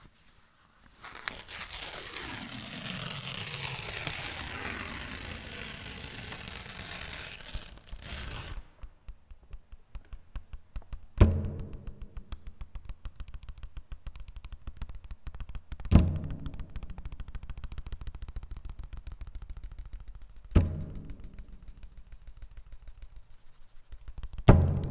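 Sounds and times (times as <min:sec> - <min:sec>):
paper crinkling and rustling: 0:00.0 - 0:08.9
fast dry ticks: 0:01.0 - 0:24.9.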